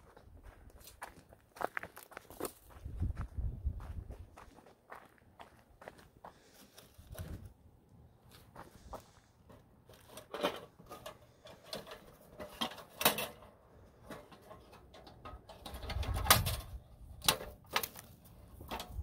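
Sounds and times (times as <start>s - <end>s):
metal trap clicks and rattles: 10.1s - 19.0s.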